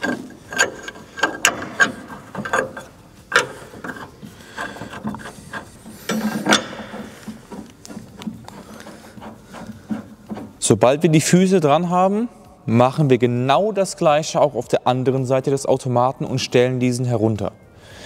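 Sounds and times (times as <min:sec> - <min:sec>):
plastic foot clicking and scraping: 0:00.0 - 0:10.8.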